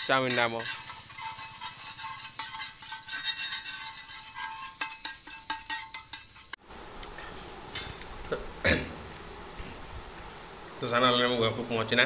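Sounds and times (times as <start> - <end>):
metal spatula scraping a pan: 0.0 - 6.6
food sizzling in a wok: 0.0 - 6.8.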